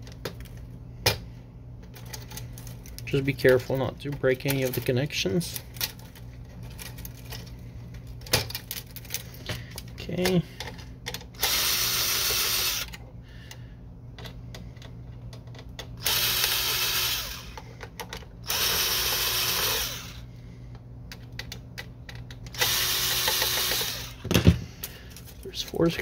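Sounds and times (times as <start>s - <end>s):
cordless drill spinning: 11.4s - 13.0s, 16.0s - 17.7s, 18.4s - 20.3s, 22.5s - 24.3s.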